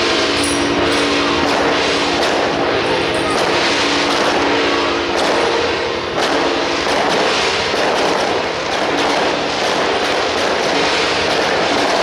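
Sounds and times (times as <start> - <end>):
steady ringing tone: 0.0 - 6.9
crashing cymbals and gongs: 0.0 - 12.0.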